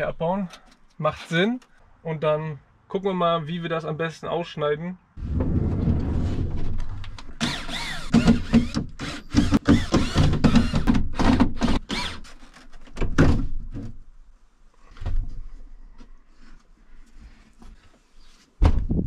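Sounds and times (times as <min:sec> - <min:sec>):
loud thump: 0:05.2 - 0:07.4, 0:18.6 - 0:19.0.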